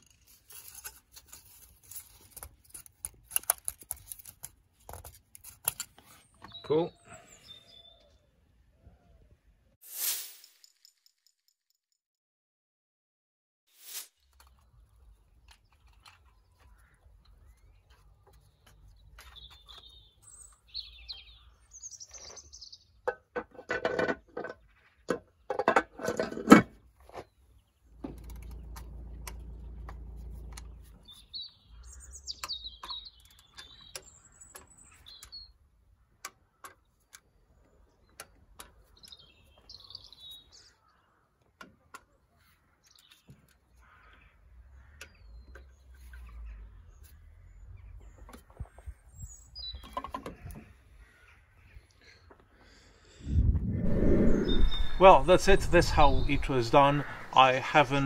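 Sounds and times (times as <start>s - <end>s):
small birds chirping: 1.4s - 9.4s, 14.4s - 23.1s, 27.0s - 58.0s
steady low hum: 53.2s - 58.0s.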